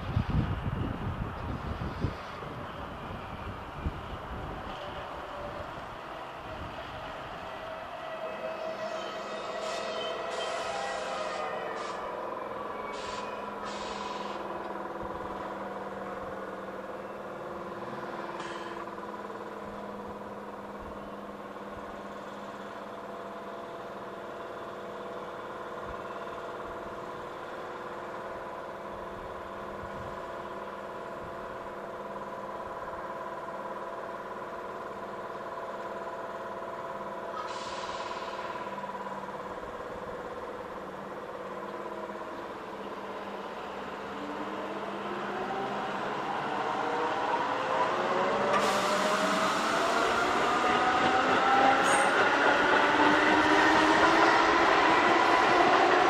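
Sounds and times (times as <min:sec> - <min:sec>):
electric train equipment humming: 0:00.0 - 0:56.0
short air hisses: 0:12.9 - 0:14.4, 0:37.4 - 0:38.5, 0:48.6 - 0:49.2.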